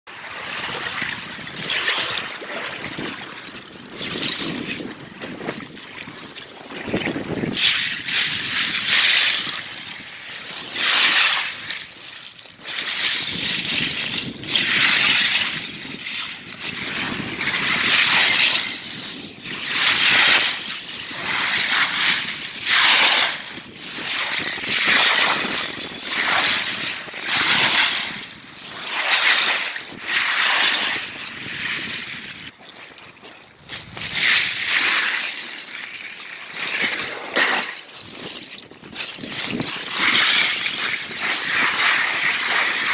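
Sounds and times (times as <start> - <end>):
boots crunching through ice: 19.7 - 31.9, 32.5 - 35.8, 36.4 - 42.9.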